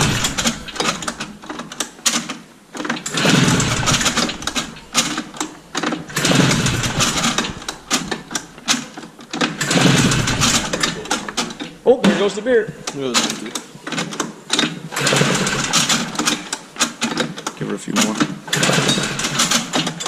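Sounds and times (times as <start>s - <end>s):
recoil pull-starter yanked: 0.0s - 11.8s
engine cranking without firing: 0.0s - 20.0s.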